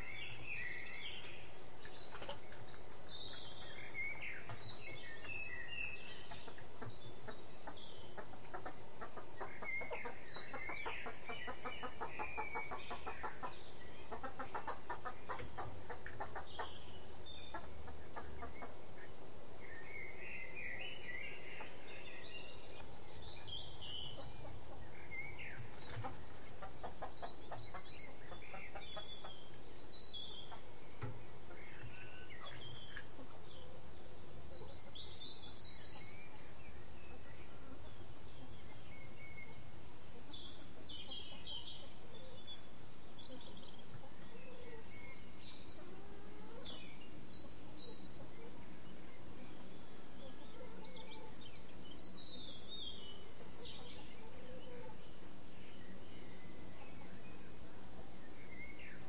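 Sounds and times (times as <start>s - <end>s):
small birds chirping: 0.0s - 59.0s
hens clucking: 2.1s - 19.1s, 24.0s - 29.6s, 30.4s - 33.7s.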